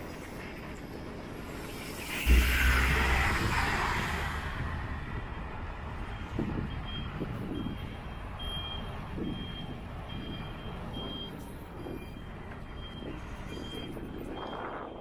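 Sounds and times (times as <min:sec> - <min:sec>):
low rumble of traffic: 0:00.0 - 0:15.0
wind: 0:00.0 - 0:15.0
passing vehicle: 0:01.3 - 0:14.9
vehicle reversing alarm beeping: 0:04.5 - 0:15.0.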